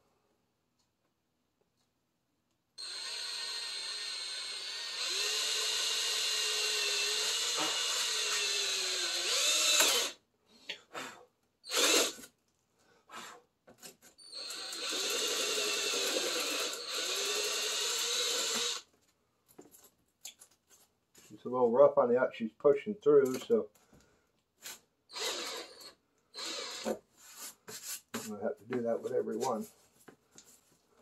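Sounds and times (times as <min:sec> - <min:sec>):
cordless drill whine: 0:02.8 - 0:10.2, 0:11.7 - 0:12.3, 0:14.2 - 0:18.8, 0:25.1 - 0:27.0
drill trigger blips: 0:02.8 - 0:10.2, 0:25.1 - 0:27.0.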